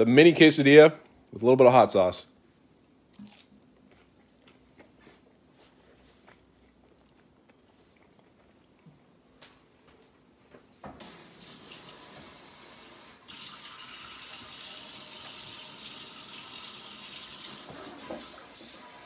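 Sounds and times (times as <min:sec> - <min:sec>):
tap water running: 0:11.0 - 0:19.0.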